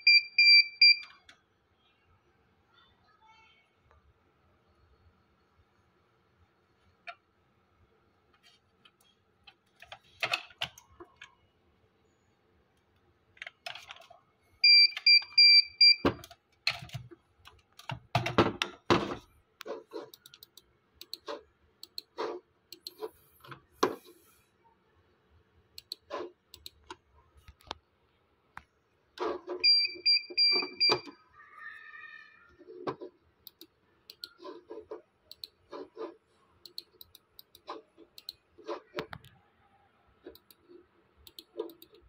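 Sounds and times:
computer mouse clicks: 0:19.6 - 0:24.2, 0:25.8 - 0:27.8, 0:33.4 - 0:39.4, 0:40.2 - 0:42.0.

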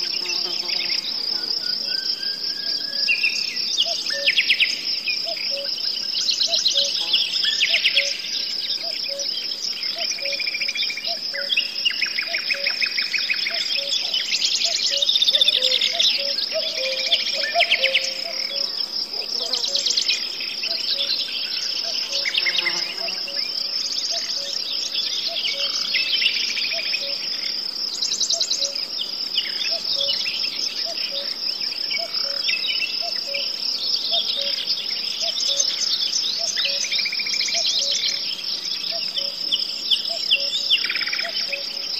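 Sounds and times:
insects chirring: 0:00.0 - 0:41.9
songbirds singing: 0:00.0 - 0:41.9.

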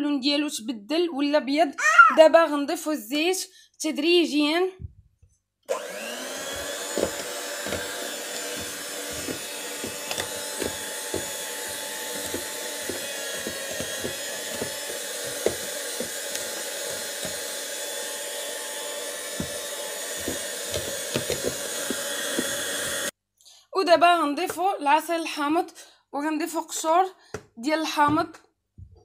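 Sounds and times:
electric hand mixer running: 0:05.7 - 0:23.2.

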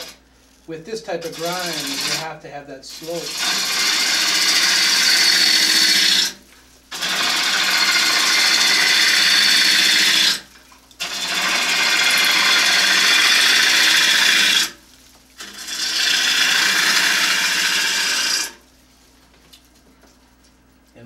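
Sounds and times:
gouge shearing wood shavings: 0:01.0 - 0:02.3, 0:03.0 - 0:06.4, 0:07.0 - 0:10.4, 0:15.4 - 0:18.6
lathe low hum: 0:03.0 - 0:10.4, 0:15.4 - 0:18.6.

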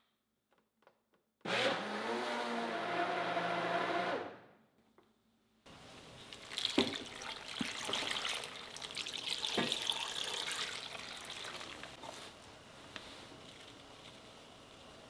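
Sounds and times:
broth pouring and splashing: 0:06.2 - 0:12.0.

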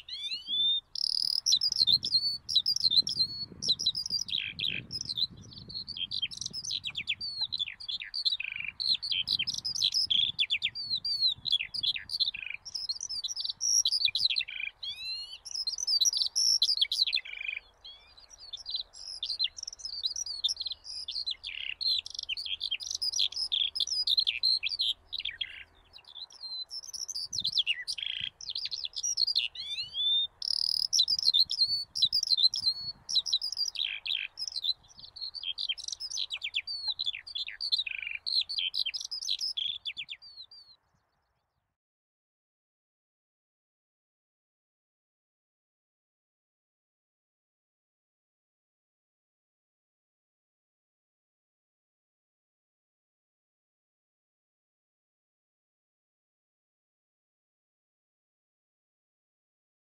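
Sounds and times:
songbird chirping and trilling: 0:00.0 - 0:41.7.

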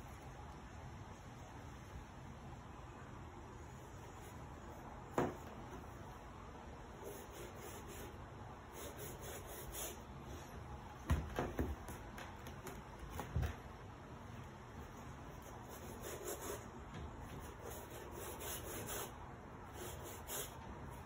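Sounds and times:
paintbrush scrubbing canvas: 0:07.0 - 0:10.5, 0:14.9 - 0:16.7, 0:17.3 - 0:21.0.

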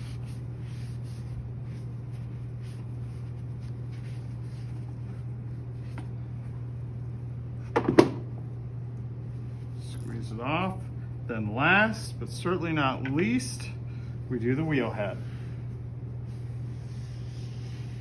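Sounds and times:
sponge wiping: 0:00.0 - 0:06.1, 0:16.1 - 0:18.0
steady low hum: 0:00.0 - 0:18.0.

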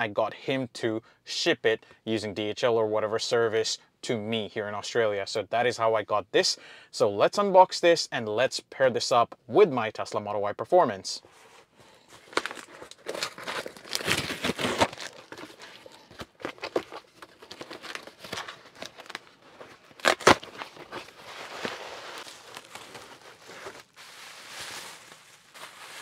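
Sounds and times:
bubble wrap crinkling: 0:12.0 - 0:26.0
tape and cardboard ripping: 0:12.2 - 0:26.0.

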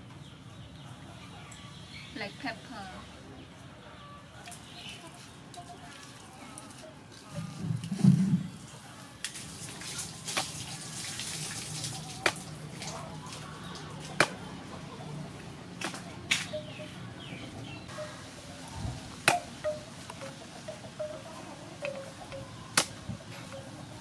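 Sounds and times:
wet fish paste slaps: 0:12.2 - 0:12.9.

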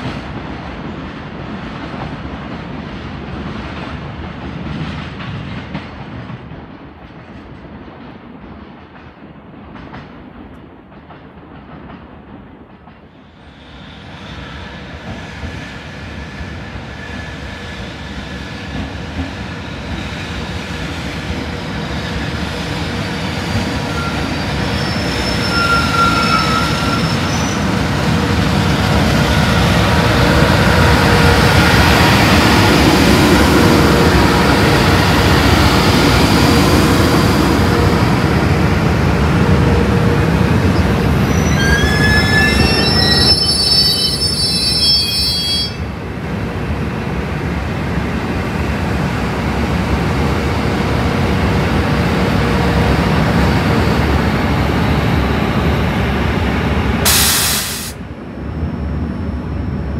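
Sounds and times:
electric locomotive blower and whine: 0:14.3 - 0:59.9.

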